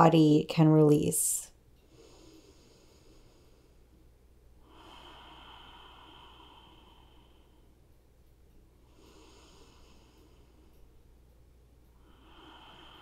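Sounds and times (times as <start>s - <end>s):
faint low hum: 0.0s - 13.0s
person breathing softly: 1.8s - 4.0s, 4.6s - 7.9s, 8.8s - 11.0s, 11.9s - 13.0s.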